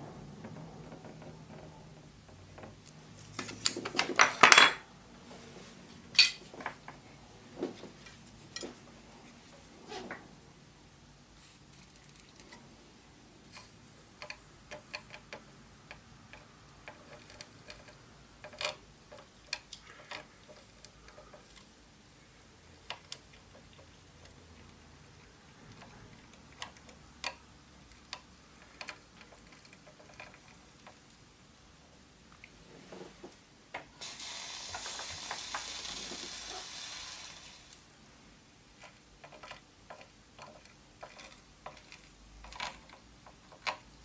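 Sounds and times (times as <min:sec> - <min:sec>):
soldering iron tapping and scraping: 0:13.5 - 0:21.8, 0:32.9 - 0:36.6, 0:38.8 - 0:44.0.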